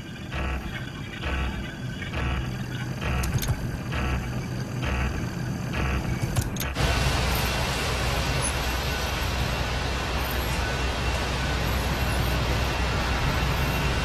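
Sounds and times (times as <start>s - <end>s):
engines rumbling: 0.0s - 14.0s
tyres hissing on wet road: 6.8s - 14.0s.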